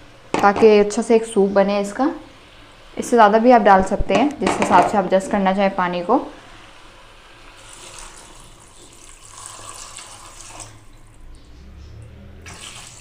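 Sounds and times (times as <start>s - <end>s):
water pouring into a pot: 7.4s - 11.2s, 12.4s - 13.0s.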